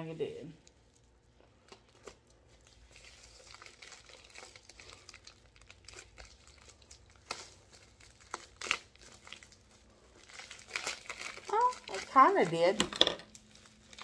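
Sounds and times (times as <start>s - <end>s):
plastic mailer crinkling and tearing: 1.6s - 14.0s.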